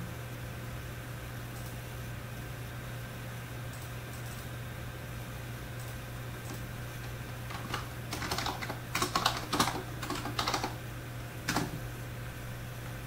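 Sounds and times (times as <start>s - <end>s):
computer keyboard typing: 5.8s - 10.8s, 11.5s - 11.8s.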